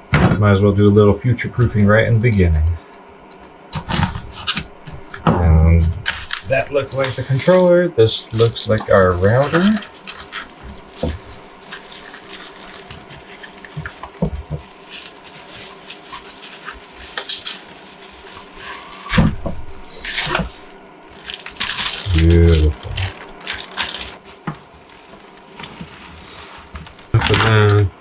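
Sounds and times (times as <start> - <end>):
bubble wrap crinkling: 6.0 - 27.9.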